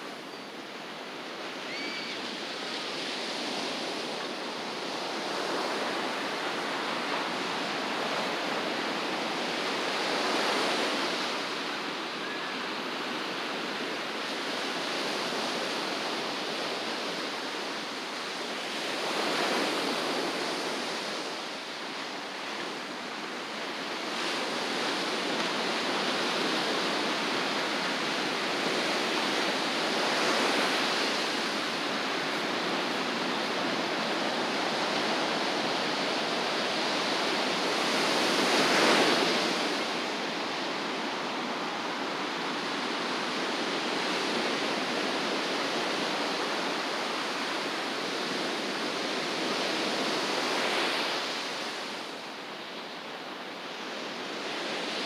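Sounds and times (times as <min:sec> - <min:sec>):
waves breaking: 0:22.6 - 0:52.2.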